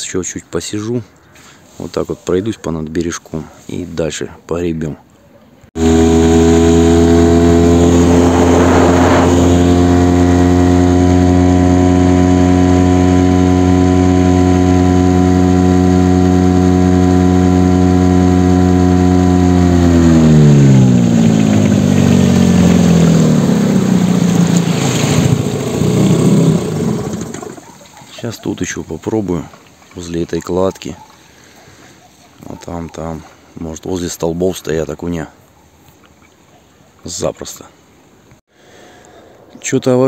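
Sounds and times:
small boat motor running: 0:05.8 - 0:28.8.

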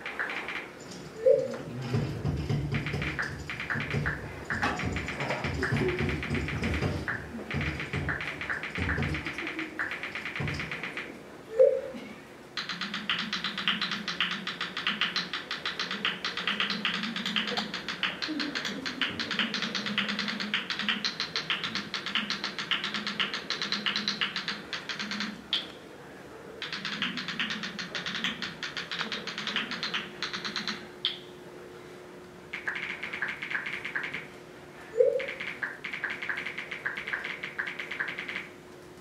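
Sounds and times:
phone keyboard taps clicking: 0:02.7 - 0:11.1, 0:12.6 - 0:25.6, 0:26.6 - 0:31.2, 0:32.5 - 0:34.3, 0:35.2 - 0:38.5.

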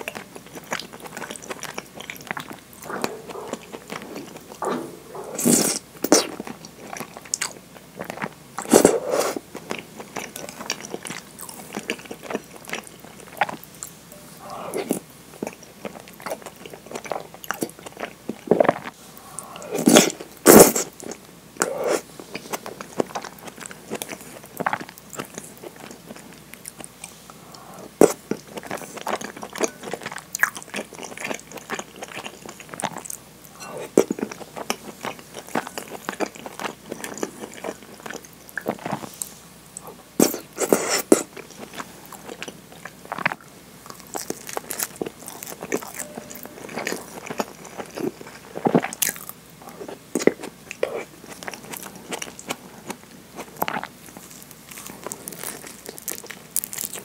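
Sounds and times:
wet chewing with mouth clicks: 0:00.0 - 0:57.0
slurping noodles: 0:02.8 - 0:06.4.

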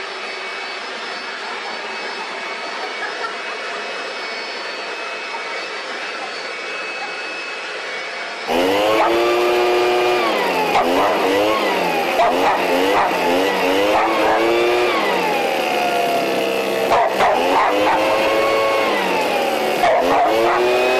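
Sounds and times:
leaf blower whining: 0:00.0 - 0:20.9
dog barking: 0:12.2 - 0:14.7, 0:16.9 - 0:18.3, 0:19.8 - 0:20.9.

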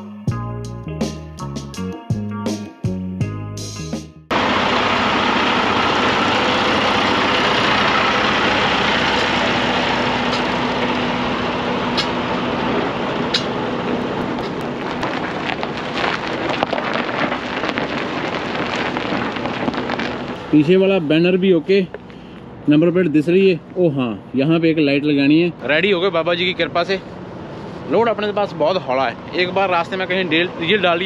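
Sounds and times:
diesel truck engine idling: 0:04.3 - 0:31.0
footsteps on gravel: 0:14.2 - 0:20.4.

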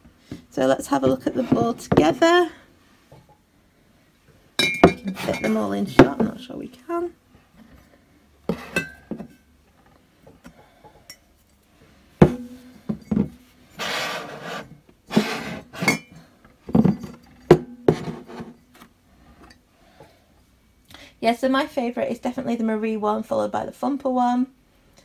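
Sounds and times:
mug scraping along shelf: 0:00.9 - 0:02.2, 0:04.9 - 0:06.2, 0:13.7 - 0:16.1, 0:17.9 - 0:18.6
ceramic mugs clinking: 0:04.6 - 0:06.2, 0:08.5 - 0:09.4, 0:15.8 - 0:16.2.

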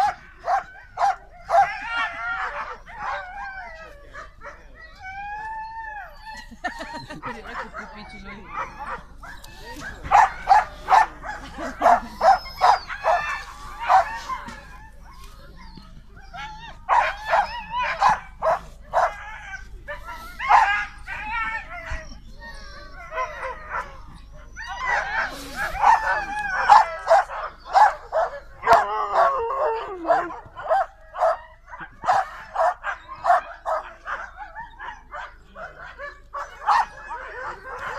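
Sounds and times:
dogs yipping and whining: 0:00.0 - 0:37.9
dog whining: 0:08.5 - 0:14.7
dog yipping and barking: 0:08.6 - 0:13.3, 0:24.6 - 0:35.3.

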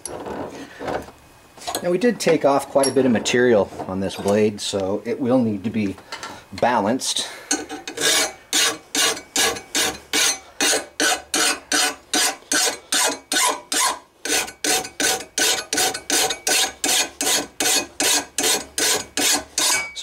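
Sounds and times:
hand file rasping on steel blade: 0:07.9 - 0:19.9.

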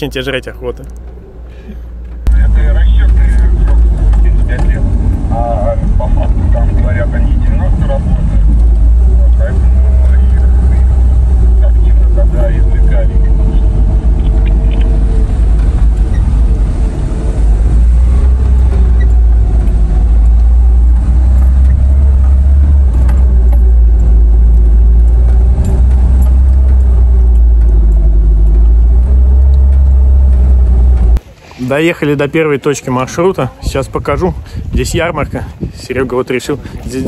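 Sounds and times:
car engine drone: 0:00.0 - 0:31.2
low road rumble: 0:00.0 - 0:37.0
faint rattles: 0:00.6 - 0:31.2.

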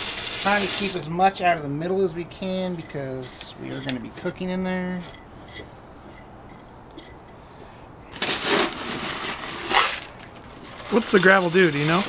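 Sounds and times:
gravel scooped with plastic cup: 0:08.2 - 0:12.0.

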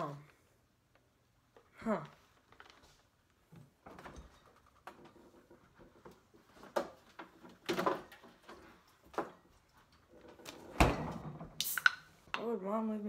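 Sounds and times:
soda can opening hiss: 0:11.6 - 0:12.1.

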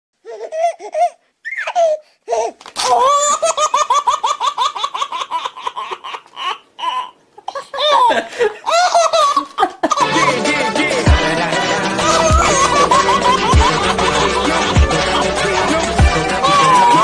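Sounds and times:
high-pitched laughter: 0:11.8 - 0:17.0.

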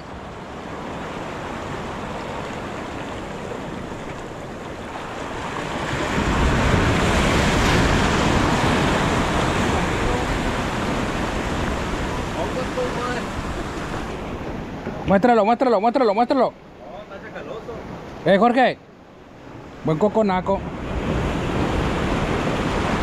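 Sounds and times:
surf washing against rocks: 0:00.0 - 0:23.0.

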